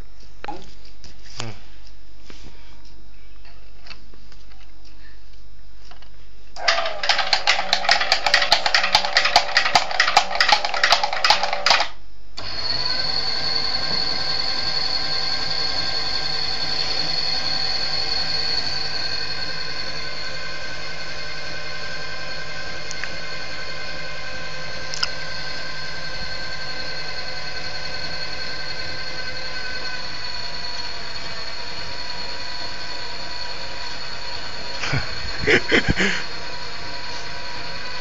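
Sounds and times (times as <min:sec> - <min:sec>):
rapid rattling clatter: 0:06.6 - 0:11.9
electric motor whine: 0:12.4 - 0:38.0.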